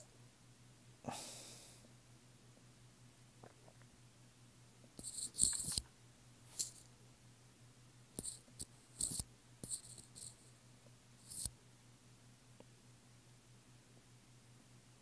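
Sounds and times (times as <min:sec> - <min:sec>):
stylus scratching on tablet screen: 0:05.0 - 0:05.8, 0:06.5 - 0:06.8, 0:08.2 - 0:10.5, 0:11.2 - 0:11.5.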